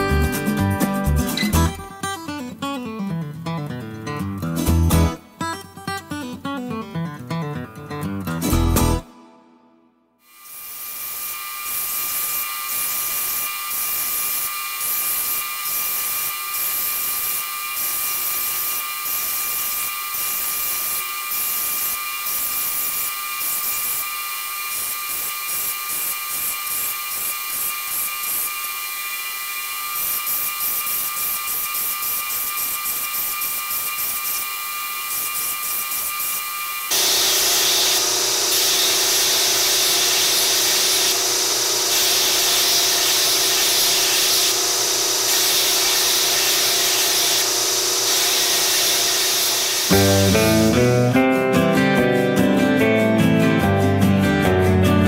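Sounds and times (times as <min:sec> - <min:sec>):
steel grinding hiss: 0:10.2 - 0:51.1
belt grinder whine: 0:10.2 - 0:51.3.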